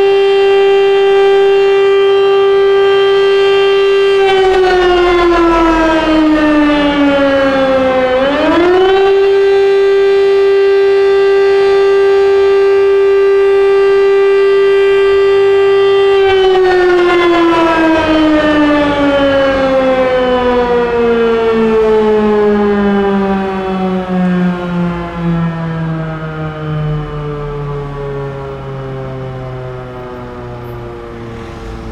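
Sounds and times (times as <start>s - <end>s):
rising and falling alert siren: 0.0s - 31.9s.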